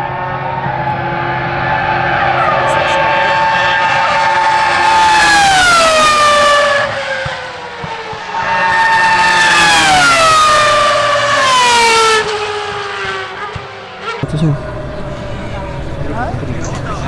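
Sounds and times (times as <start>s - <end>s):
race car engine passing: 0.0s - 17.0s.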